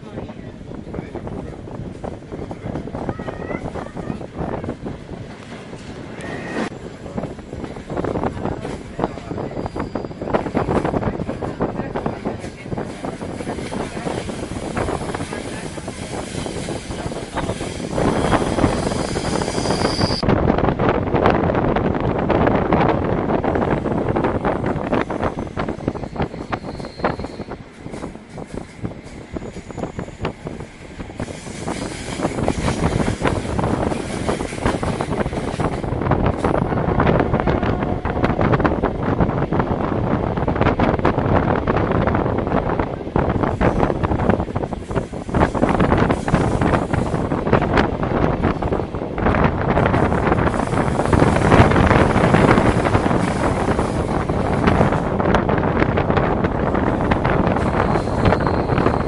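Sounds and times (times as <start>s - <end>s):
train carriage rattling: 0.0s - 59.0s
wind buffeting microphone: 0.0s - 59.0s
train wheels clicking over rails: 24.0s - 39.8s.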